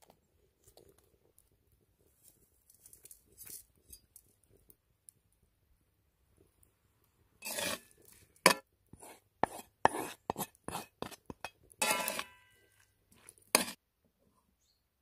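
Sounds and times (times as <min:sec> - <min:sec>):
wooden spatula scraping bowl: 0:07.4 - 0:07.9, 0:08.5 - 0:12.4, 0:13.1 - 0:13.8.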